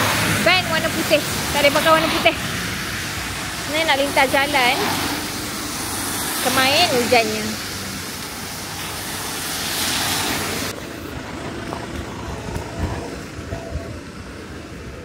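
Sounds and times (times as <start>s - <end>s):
rain hissing: 0.0s - 11.1s
traffic on wet road: 0.0s - 15.0s.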